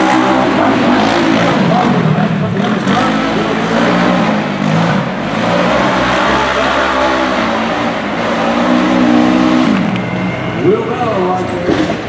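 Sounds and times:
race engine revving: 0:00.0 - 0:12.0.

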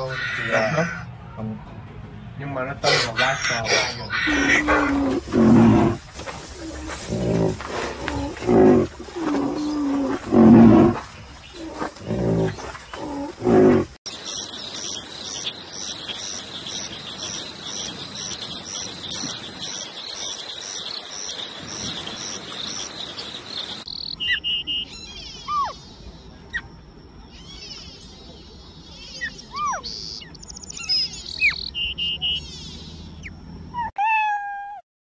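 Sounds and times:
rhinoceros grunting calls: 0:02.8 - 0:14.0
bird chirps and whistles: 0:24.0 - 0:25.7, 0:29.5 - 0:32.6.

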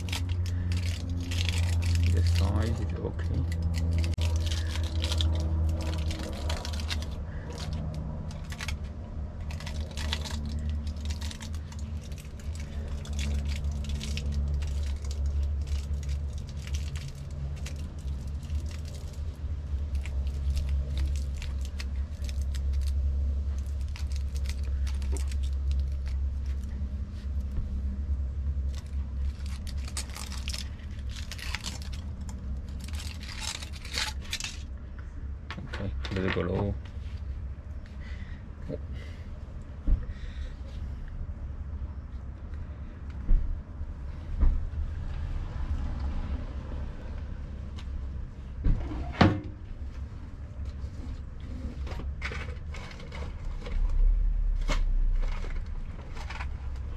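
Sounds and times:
aluminium foil crinkling: 0:00.0 - 0:27.9, 0:28.5 - 0:34.8
steady low hum: 0:00.0 - 0:56.9.

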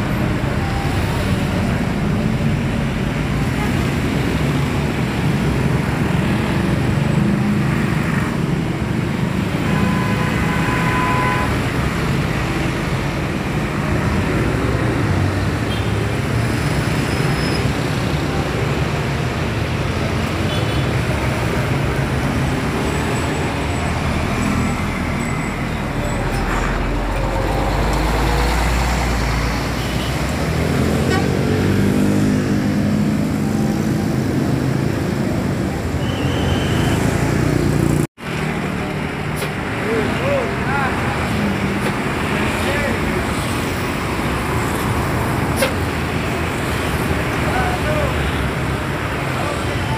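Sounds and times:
traffic noise: 0:00.0 - 0:49.9
diesel coach engines running: 0:21.1 - 0:31.4.

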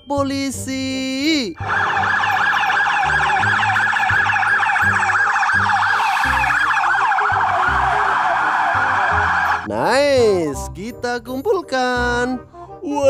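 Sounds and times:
emergency sirens yelping: 0:01.5 - 0:09.7.

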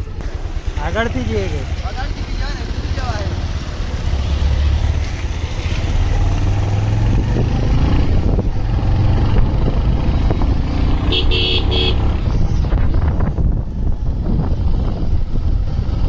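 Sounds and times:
vehicle engine and wind rumble: 0:00.0 - 0:16.0
vehicle horn toots: 0:11.1 - 0:12.1.

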